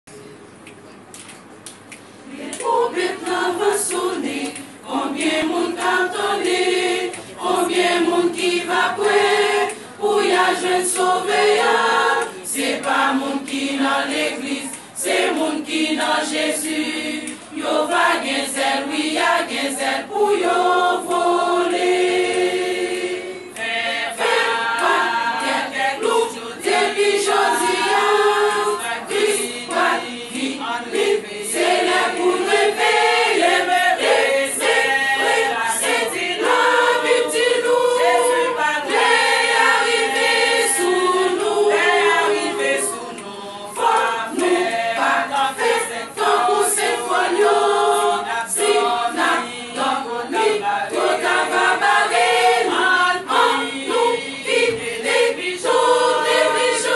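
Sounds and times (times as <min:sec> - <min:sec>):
women's choir singing gospel: 0:01.8 - 0:56.9.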